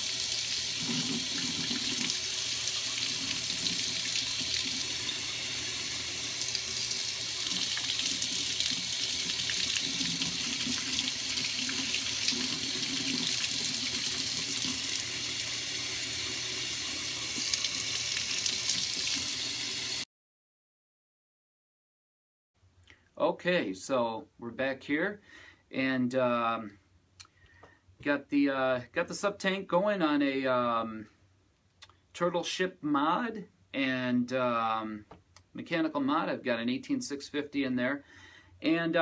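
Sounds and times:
tap water running into sink: 0.0 - 20.0.

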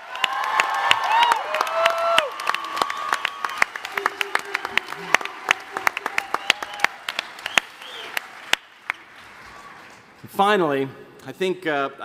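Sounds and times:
crowd whooping: 0.0 - 8.4
audience applauding: 0.0 - 10.2.

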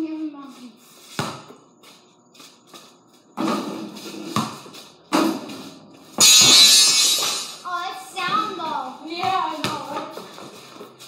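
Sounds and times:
basketball bouncing on concrete: 1.2 - 1.6, 3.4 - 5.6, 8.2 - 11.0
loud crash: 6.2 - 7.6.

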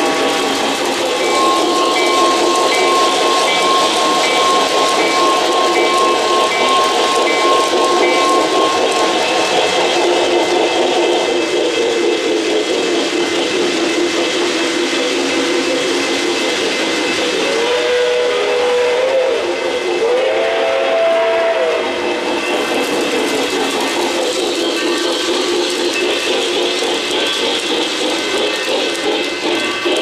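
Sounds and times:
pulsing high tone: 0.0 - 17.9
electronic locomotive sound effects: 0.0 - 30.0
model train wheels rumbling: 0.0 - 30.0.

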